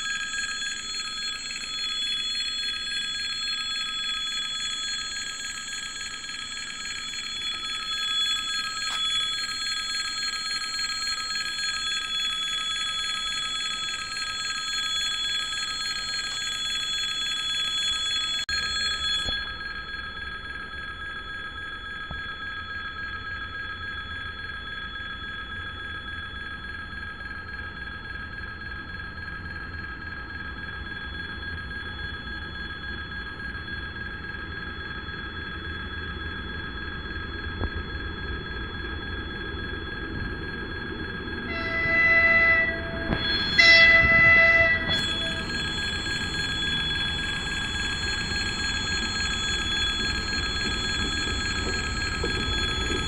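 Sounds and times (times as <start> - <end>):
level crossing warning bell: 0.0 - 19.9, 41.5 - 53.0.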